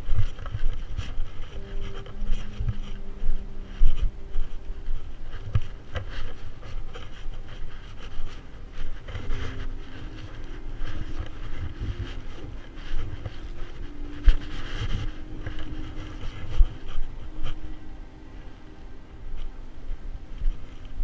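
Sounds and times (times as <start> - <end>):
clothing and gear rustling: 0.0 - 21.0
faint steady hum: 0.0 - 21.0
footsteps through dry grass: 0.0 - 21.0.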